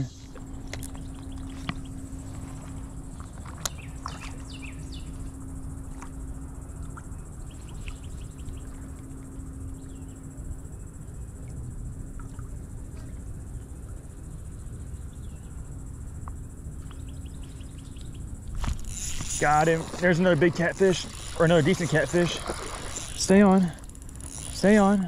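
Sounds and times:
insect chorus: 0.0 - 25.0
low steady hum: 0.0 - 25.0
bird chirps: 3.6 - 5.2.

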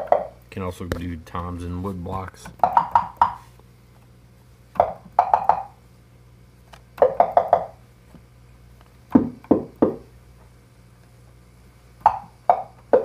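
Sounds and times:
synthesizer wood-block and tom hits: 0.0 - 0.4, 2.6 - 3.4, 4.8 - 5.8, 7.0 - 7.8, 9.1 - 10.1, 12.0 - 13.0.

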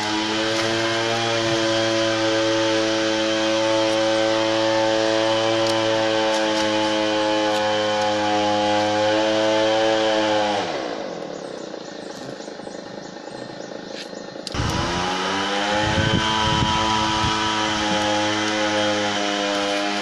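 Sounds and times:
small engine running: 0.0 - 20.0.

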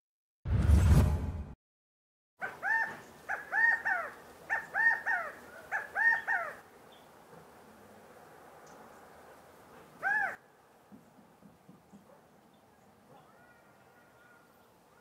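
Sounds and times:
quail calling: 2.4 - 6.7, 10.0 - 10.4.

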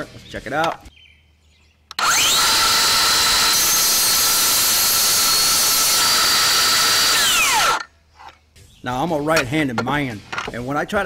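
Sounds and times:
circular saw cutting steel tubing: 1.9 - 7.9.

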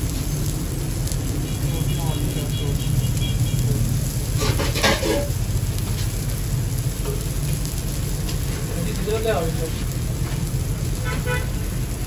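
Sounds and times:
frying sizzle on griddle: 0.0 - 12.0
gas burner rumble: 0.0 - 12.0
clatter: 4.4 - 5.3.

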